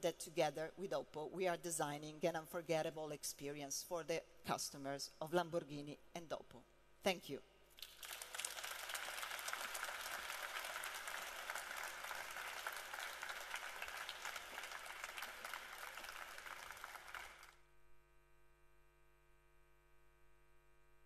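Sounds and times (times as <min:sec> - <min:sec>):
large audience applauding: 0:07.8 - 0:17.6.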